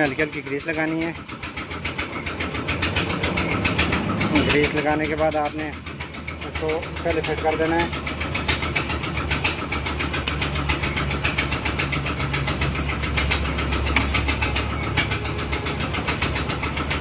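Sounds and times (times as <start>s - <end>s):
engine idling with ticking: 0.0s - 17.0s.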